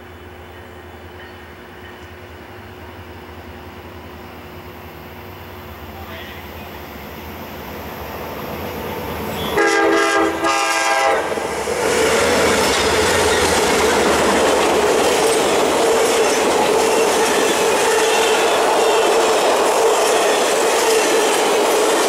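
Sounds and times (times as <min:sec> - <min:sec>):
train wheels clattering on rails: 0:01.1 - 0:02.4, 0:11.3 - 0:22.0
train air horn: 0:09.3 - 0:11.4, 0:17.0 - 0:19.1.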